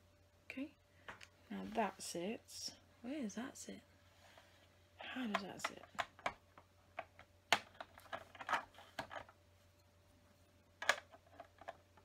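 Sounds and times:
plastic bricks clicking and rattling: 7.0 - 9.3.

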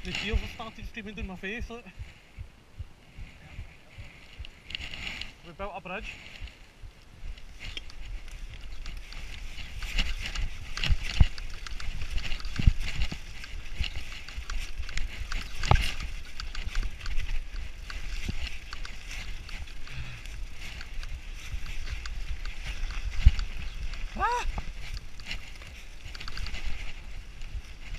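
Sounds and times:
tyres rumbling on dirt trail: 0.0 - 2.4, 3.1 - 27.9
wind on microphone: 0.0 - 5.5, 6.2 - 27.9
bike knocking and rattling: 7.2 - 27.9.

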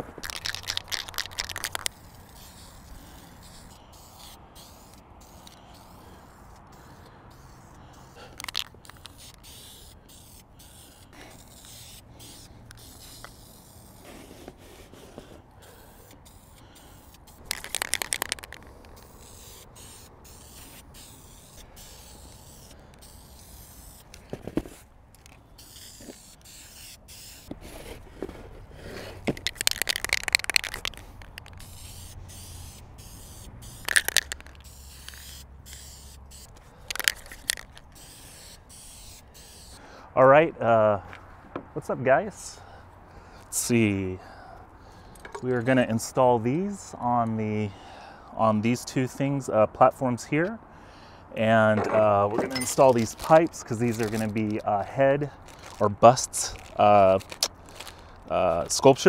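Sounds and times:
aerosol spray paint spraying: 0.0 - 39.8, 52.5 - 54.6.

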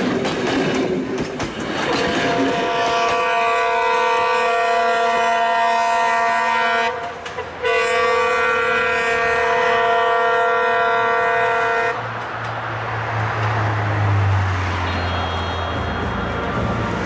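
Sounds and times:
train running: 0.0 - 17.0
locomotive horn blast: 1.9 - 12.0, 14.8 - 17.0.

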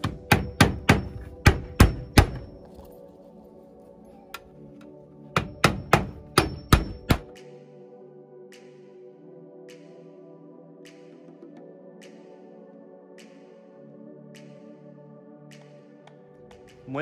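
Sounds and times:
hammer striking nails into metal: 0.0 - 2.5, 5.4 - 7.3.

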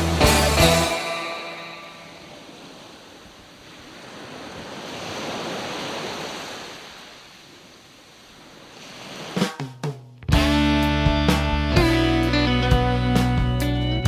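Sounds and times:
guitar music: 0.0 - 2.3, 10.2 - 14.0
sharp hits: 0.2 - 2.8.

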